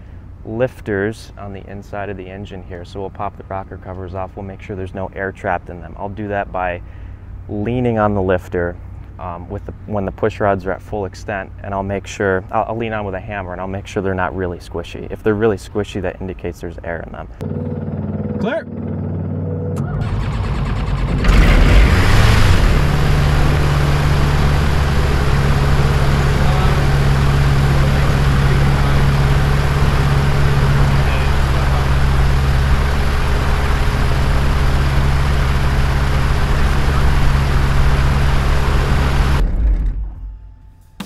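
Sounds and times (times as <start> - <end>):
aircraft engine running: 17.4 - 39.4
engine winding down: 17.4 - 40.4.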